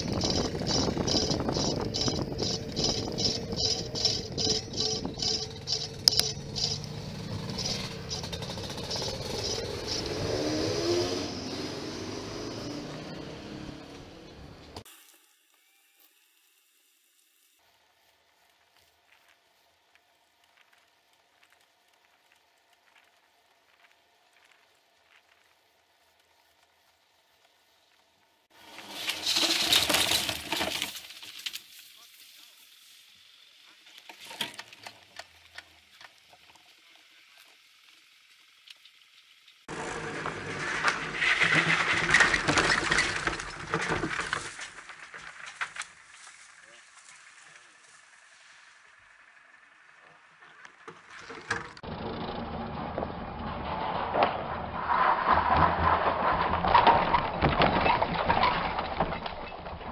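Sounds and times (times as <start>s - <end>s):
wind noise on microphone: 0.0s - 5.6s
vehicle noise: 0.0s - 14.9s, 32.7s - 59.8s.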